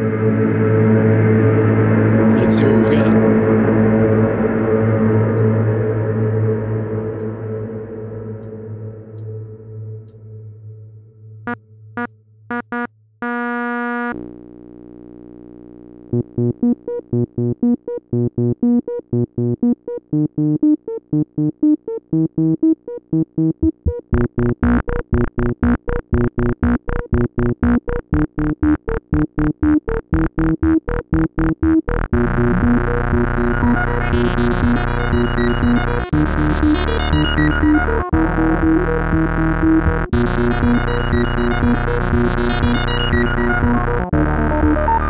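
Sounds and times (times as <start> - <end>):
synthesizer notes: 16.4 - 45.0.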